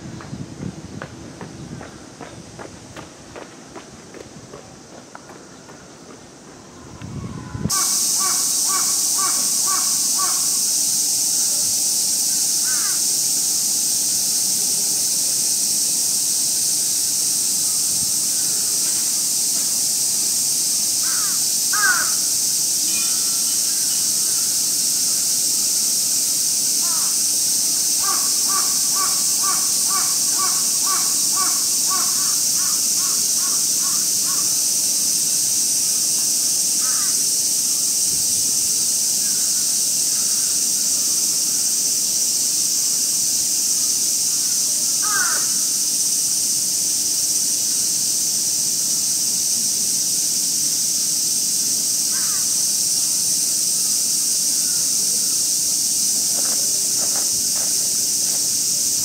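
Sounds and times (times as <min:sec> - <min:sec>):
steady high-pitched hiss: 0:00.0 - 0:59.0
crow cawing: 0:07.7 - 0:10.5, 0:12.6 - 0:13.0, 0:21.0 - 0:22.2, 0:26.8 - 0:27.2, 0:28.0 - 0:34.4, 0:36.8 - 0:37.1, 0:45.0 - 0:45.6, 0:52.1 - 0:52.5.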